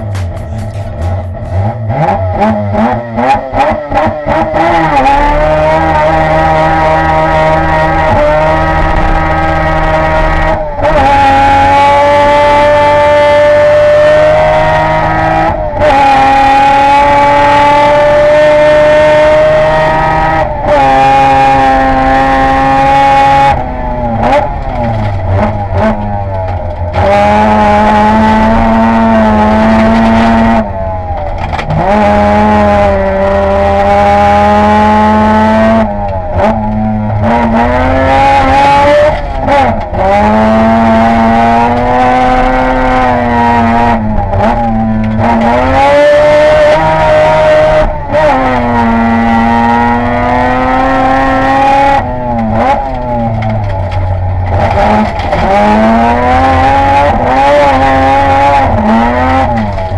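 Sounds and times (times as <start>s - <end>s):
exhaust cracks: 0.0s - 2.8s, 20.4s - 33.6s, 51.9s - 59.9s
rally car engine at high revs: 0.0s - 59.9s.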